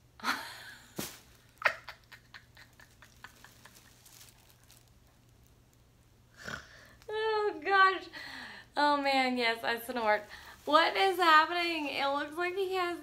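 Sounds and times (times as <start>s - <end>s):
snort: 6.4s - 6.9s.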